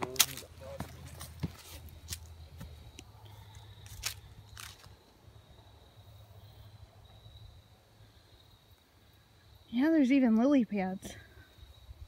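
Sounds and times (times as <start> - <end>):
footsteps crunching on leaves: 0.0 - 5.0
faint high insect drone: 0.0 - 12.0.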